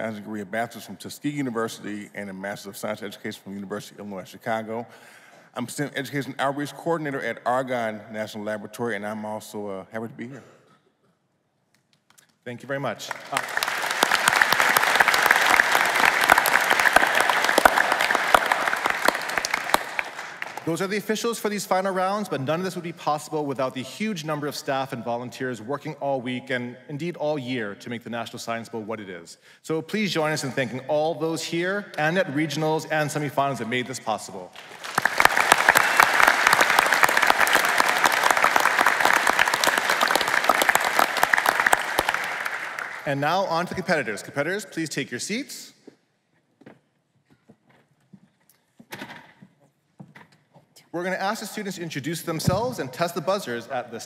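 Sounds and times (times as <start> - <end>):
audience applause: 13.0 - 20.7, 34.5 - 43.2.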